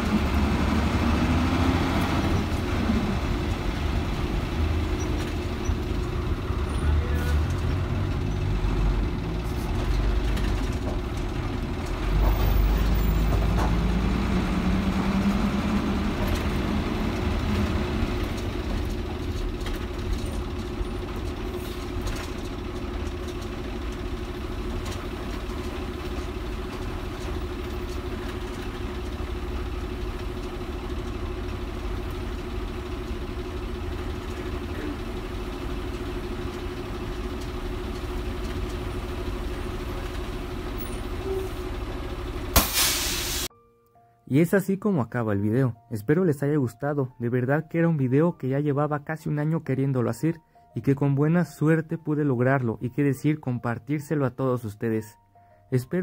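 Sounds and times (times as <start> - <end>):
bus diesel engine running: 0.0 - 43.5.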